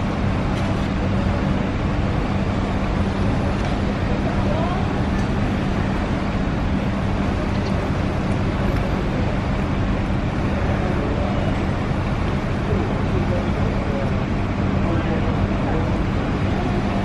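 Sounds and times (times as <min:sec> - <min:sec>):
urban rumble and hiss: 0:00.0 - 0:17.0.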